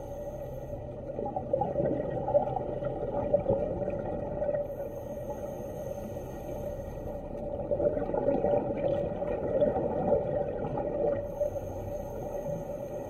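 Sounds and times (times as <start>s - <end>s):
steady low hum: 0.0s - 13.0s
bubbles rushing underwater: 1.2s - 4.7s, 7.4s - 11.3s.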